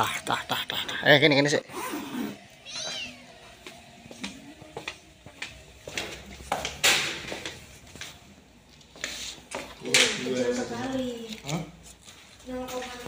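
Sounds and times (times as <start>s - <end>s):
cat meowing: 2.6s - 3.5s.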